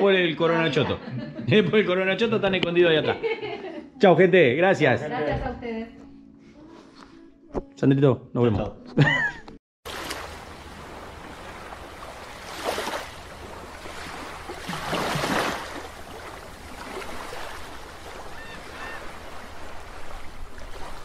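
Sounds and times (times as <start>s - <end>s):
sea surf washing: 9.9s - 21.0s
waves breaking: 9.9s - 21.0s.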